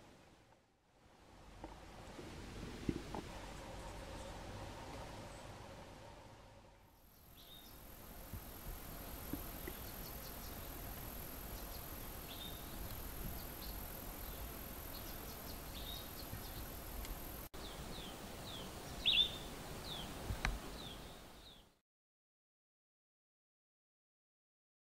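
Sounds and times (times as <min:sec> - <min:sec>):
insect hum: 0:00.0 - 0:21.8
birds chirping: 0:03.1 - 0:21.8.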